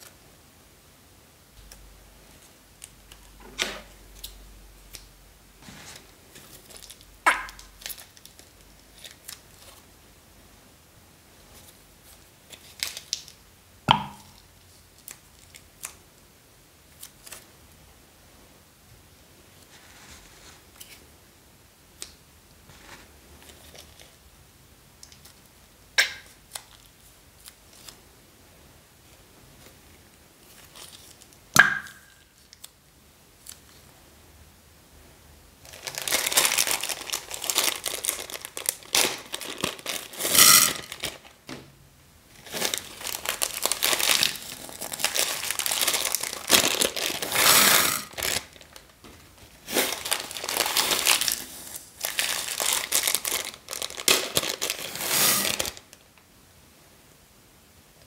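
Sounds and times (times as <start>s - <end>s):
plastic packets crinkling and tearing: 6.4s - 9.8s, 12.5s - 13.4s, 35.6s - 41.4s, 42.3s - 56.0s.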